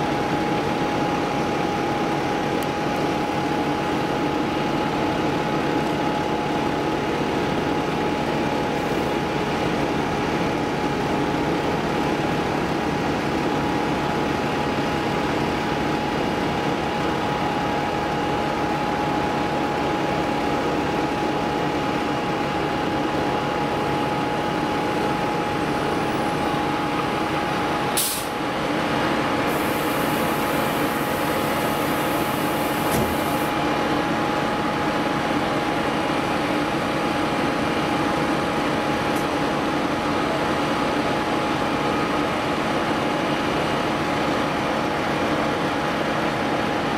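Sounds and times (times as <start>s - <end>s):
diesel engine droning: 0.0s - 46.6s.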